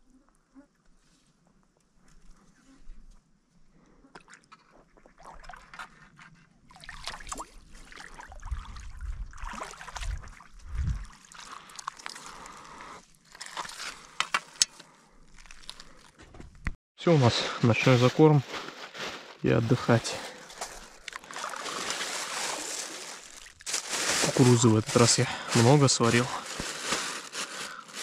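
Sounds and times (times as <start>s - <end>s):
fish thrashing and water splashing: 6.6s - 14.2s, 20.5s - 24.7s, 25.6s - 28.0s
net clicking on pebbles: 20.7s - 28.0s.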